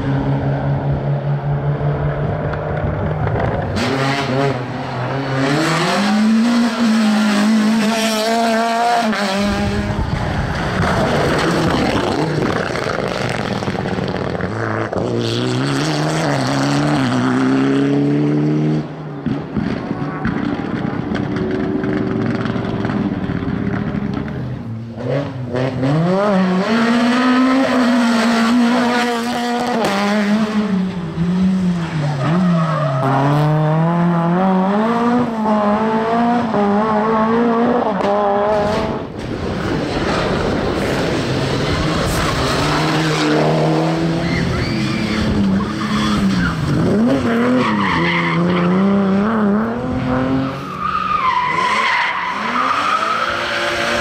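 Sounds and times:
rally car engines revving: 0.0 - 54.0
tyres squealing: 44.1 - 46.8.

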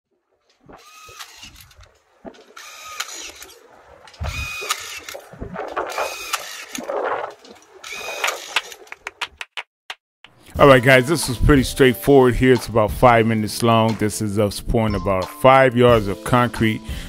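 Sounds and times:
drill whirring: 0.8 - 1.7, 2.6 - 3.5, 4.3 - 5.2, 6.0 - 6.8, 7.8 - 8.7.

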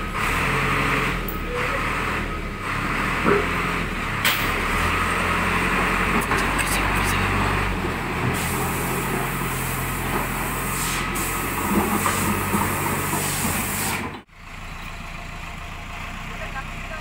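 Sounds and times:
diesel engine drone: 0.0 - 17.0
hiss: 8.3 - 14.1.

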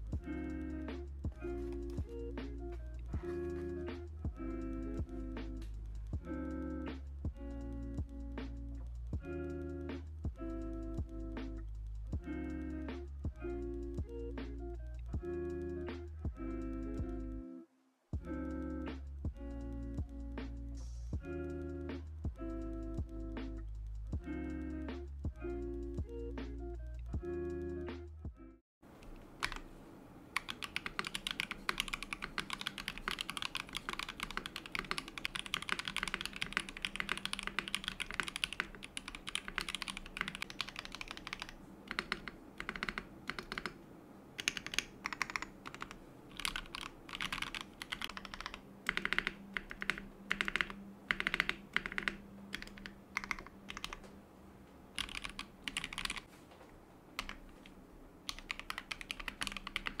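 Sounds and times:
mechanical keyboard typing: 29.0 - 29.7, 30.4 - 43.8, 44.4 - 54.0, 55.0 - 56.3, 57.2 - 57.7, 58.3 - 60.0.

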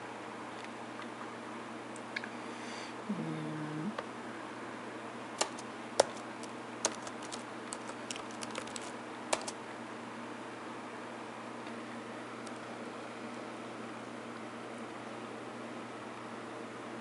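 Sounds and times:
computer keyboard keys clicking: 5.4 - 9.6.

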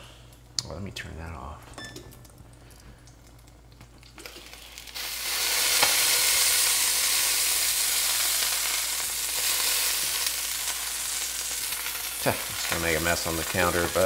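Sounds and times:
fish sizzling in skillet: 4.2 - 14.0.

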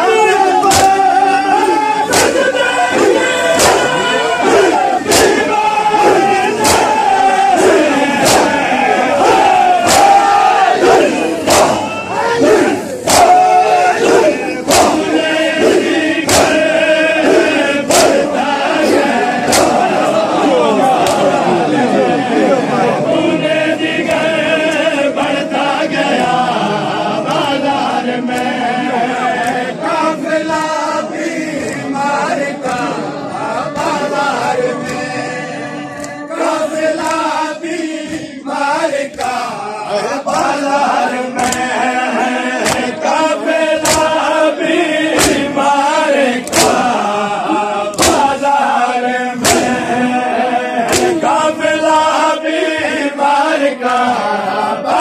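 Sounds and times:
men chanting together: 0.0 - 55.0
hands slapping chests: 0.6 - 1.0, 2.1 - 8.6, 9.2 - 11.8, 13.0 - 13.4, 15.6 - 18.3, 18.9 - 20.2, 21.0 - 21.3, 34.8 - 35.1, 37.0 - 37.3, 41.4 - 41.7, 42.5 - 43.0, 43.8 - 44.2, 45.1 - 45.6, 46.4 - 47.0, 47.9 - 48.4, 49.4 - 49.8, 50.8 - 51.3.

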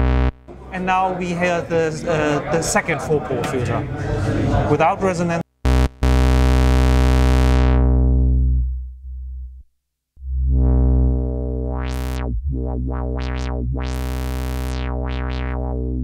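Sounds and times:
synthesizer bass note with filter sweeps: 5.7 - 9.6, 10.2 - 16.0.

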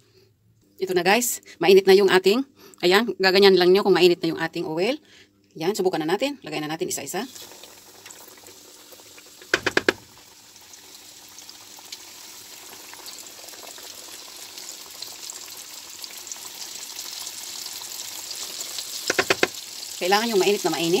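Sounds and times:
chicken sizzling in hot oil: 7.0 - 21.0
sharp clicks: 9.4 - 10.0, 19.1 - 19.5.

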